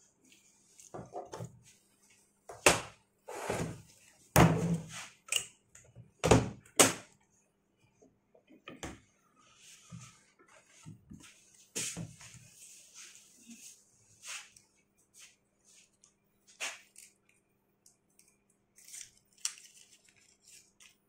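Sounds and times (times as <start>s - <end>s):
soft handling noises: 0.1s - 2.5s.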